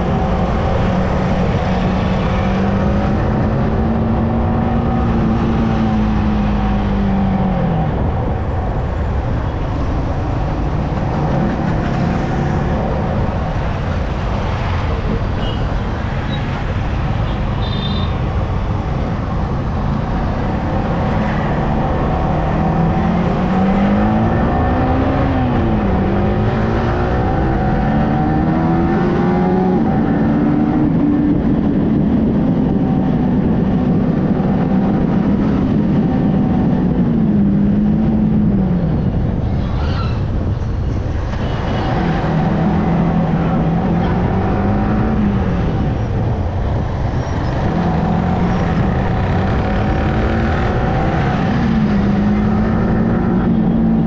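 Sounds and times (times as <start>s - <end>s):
wind and road noise: 0.0s - 54.0s
motorcycle engine revving: 41.6s - 54.0s.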